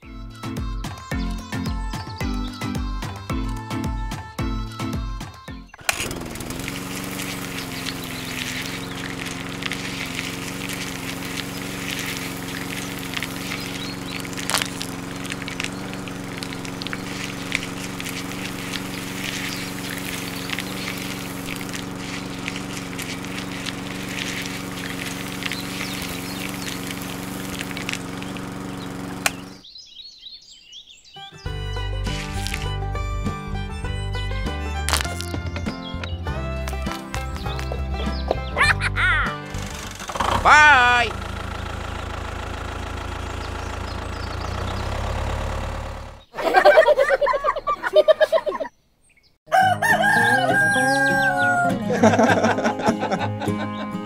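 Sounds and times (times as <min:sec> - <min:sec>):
beans and sand rattling on mesh: 0:05.8 - 0:29.6, 0:32.1 - 0:32.7
small electric motor running: 0:05.8 - 0:29.6, 0:32.1 - 0:32.8, 0:39.5 - 0:46.2.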